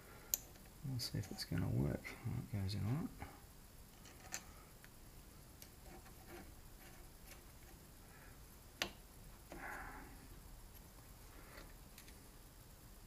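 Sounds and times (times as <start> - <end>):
small metallic clicks: 0.3 - 0.7.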